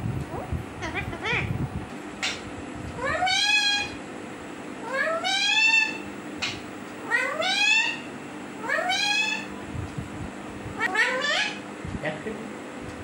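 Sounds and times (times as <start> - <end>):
parakeet meow-like calls: 3.0 - 4.0, 4.8 - 9.5, 10.8 - 11.6.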